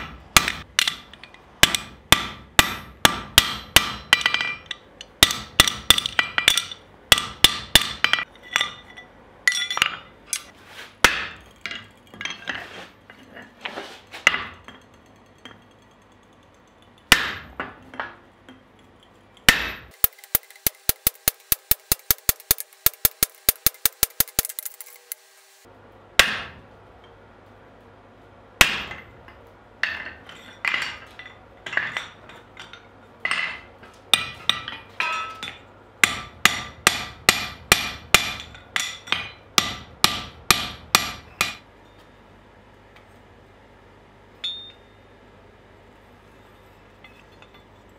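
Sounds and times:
hammer striking steel on anvil: 0:00.0 - 0:12.4, 0:17.0 - 0:18.2, 0:19.4 - 0:25.2, 0:26.2 - 0:27.2, 0:28.6 - 0:29.1, 0:29.8 - 0:42.0, 0:44.4 - 0:45.0.

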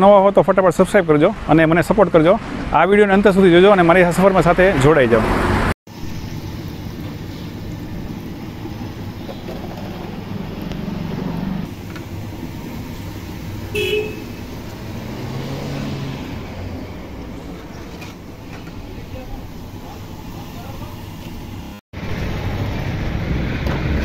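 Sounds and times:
road traffic rumble: 0:00.1 - 0:24.0
vehicle horn toot: 0:13.7 - 0:14.4.

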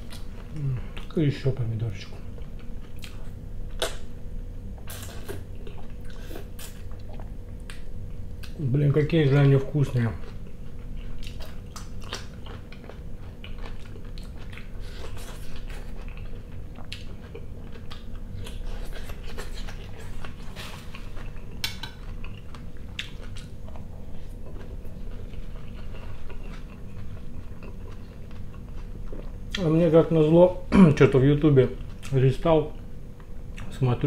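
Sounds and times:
chewing and biting food: 0:09.3 - 0:29.8.

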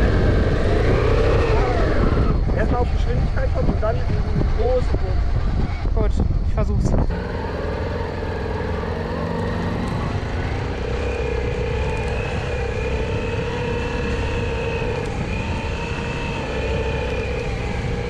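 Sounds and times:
motorcycle engine under load: 0:07.0 - 0:18.0.

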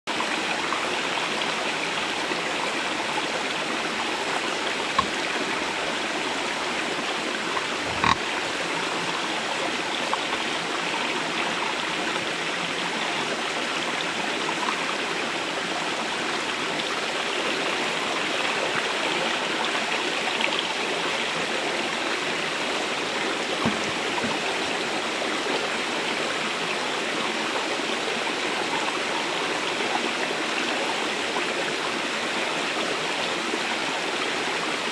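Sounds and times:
stream rushing over stones: 0:00.1 - 0:34.9
brief knocks: 0:23.6 - 0:24.5.

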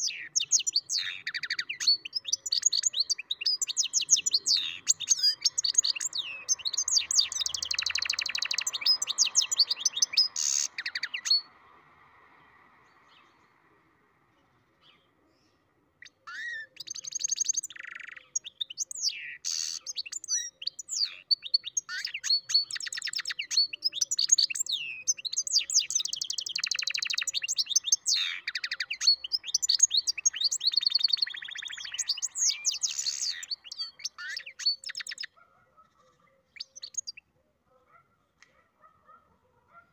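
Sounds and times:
bird twittering song: 0:00.0 - 0:37.3.

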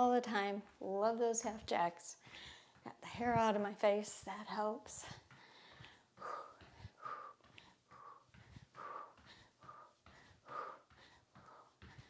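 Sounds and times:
faint low thuds of movement: 0:01.6 - 0:12.0
woman breathing heavily: 0:02.1 - 0:03.4, 0:04.8 - 0:12.0.

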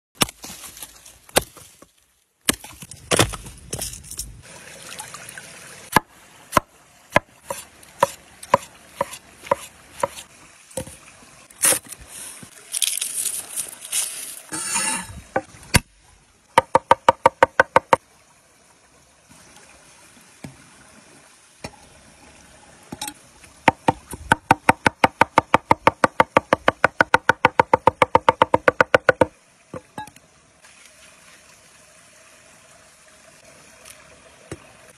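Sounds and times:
faint stream running: 0:00.2 - 0:34.9
hatchet splitting wood: 0:02.5 - 0:03.8, 0:23.7 - 0:29.3
cleaver chopping on cutting board: 0:07.5 - 0:10.2.

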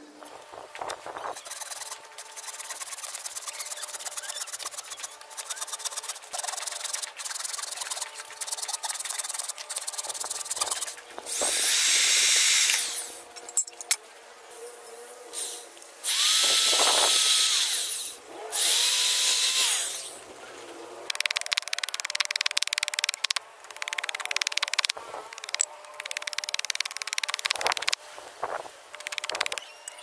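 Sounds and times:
hand saw cutting wood: 0:01.4 - 0:13.2
power tool running: 0:11.2 - 0:13.4, 0:15.3 - 0:20.2.

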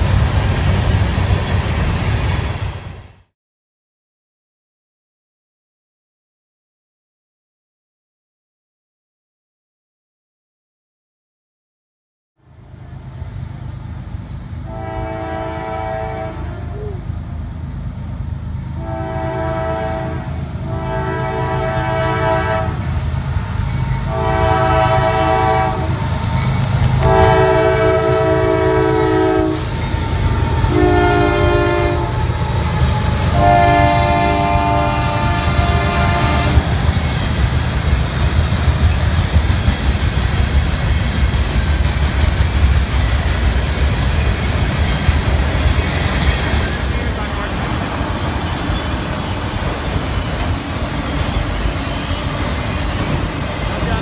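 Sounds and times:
locomotive engine and rail rumble: 0:00.0 - 0:03.3, 0:12.4 - 0:54.0
locomotive air horn blasts: 0:14.7 - 0:16.8, 0:18.8 - 0:22.8, 0:24.1 - 0:26.0, 0:26.9 - 0:36.7.

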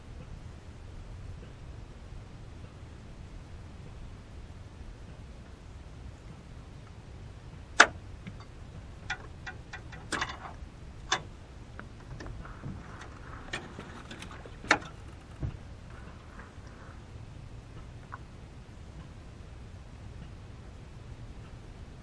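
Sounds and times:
sharp clicks and knocks: 0:07.8 - 0:16.7
dull low thump: 0:11.8 - 0:17.0.

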